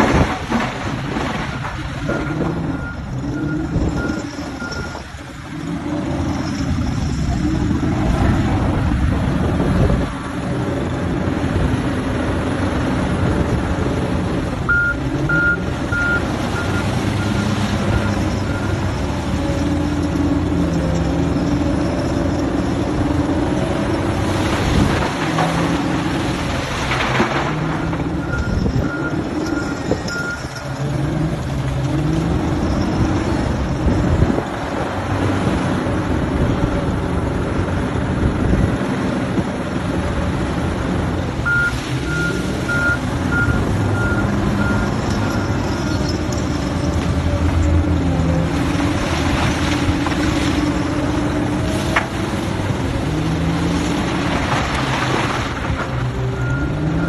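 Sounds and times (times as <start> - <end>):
diesel engine revving: 0.0 - 57.0
reversing alarm beeping: 2.1 - 5.1, 14.7 - 18.9, 27.8 - 30.7, 41.4 - 46.9, 56.3 - 57.0.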